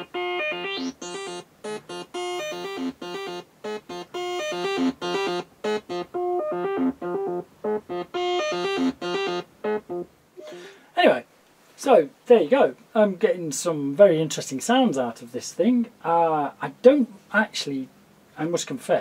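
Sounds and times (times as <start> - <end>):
synthesiser playing short pitched notes: 0.0 - 10.6.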